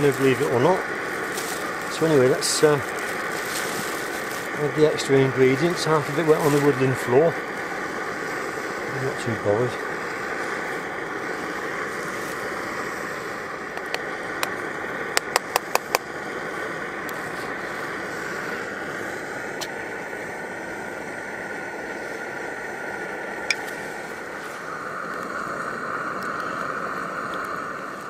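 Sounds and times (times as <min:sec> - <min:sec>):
stove burner roaring: 0:00.0 - 0:28.0.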